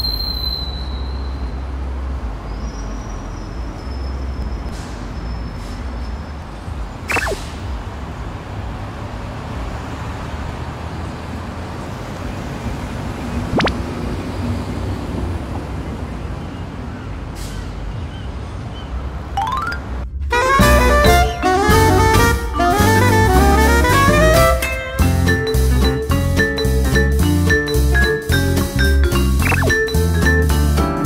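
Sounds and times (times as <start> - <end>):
city traffic rumble: 0.0 - 31.0
short falling swish: 7.1 - 7.6, 13.5 - 13.8.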